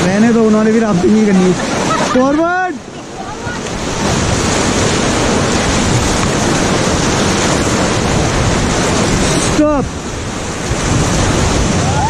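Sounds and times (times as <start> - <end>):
whitewater rushing: 0.0 - 12.0
wind on microphone: 3.0 - 12.0.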